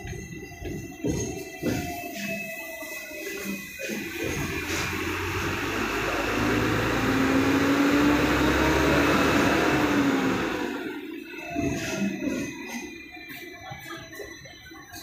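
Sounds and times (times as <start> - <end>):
tram motor whine: 0.0 - 14.0
tram wheels rumbling on rails: 3.8 - 12.7.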